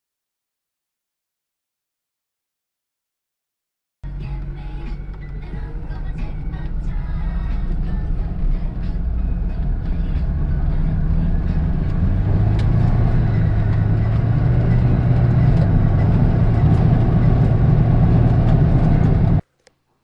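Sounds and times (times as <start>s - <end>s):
car engine drone: 4.0s - 19.5s
road noise: 4.0s - 19.6s.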